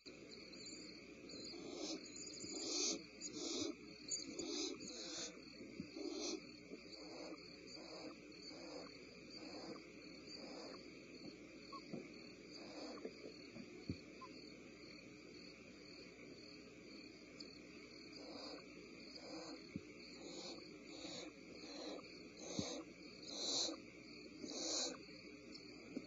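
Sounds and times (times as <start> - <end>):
crickets chirring: 0.0 - 26.0
owl nestlings hissing: 0.8 - 11.0, 12.6 - 13.1, 17.6 - 25.1.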